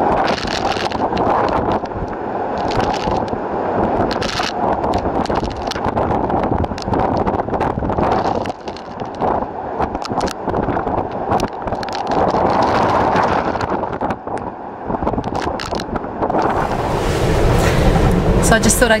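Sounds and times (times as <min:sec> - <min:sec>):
wind gusting across microphone: 0:00.0 - 0:19.0
rain ticking against camera: 0:00.2 - 0:14.4.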